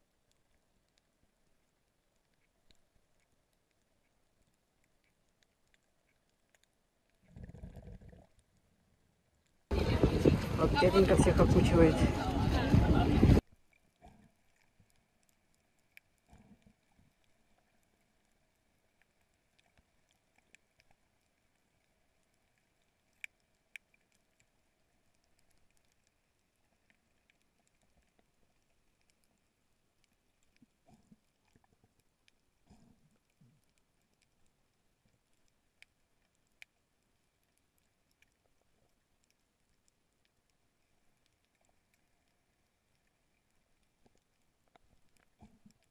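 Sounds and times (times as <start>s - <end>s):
faint clicks: 0.1s - 8.7s, 13.4s - 45.9s
faint steady hum: 13.4s - 45.9s.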